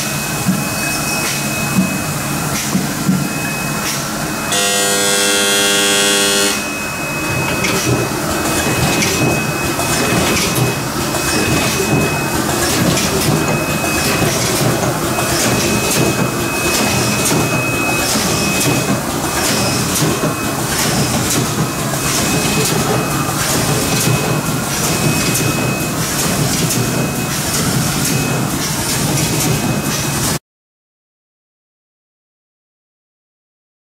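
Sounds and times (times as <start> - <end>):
machine hum: 0.0 - 29.4
thin high whine: 3.2 - 8.0
printing machine clatter: 6.3 - 30.4.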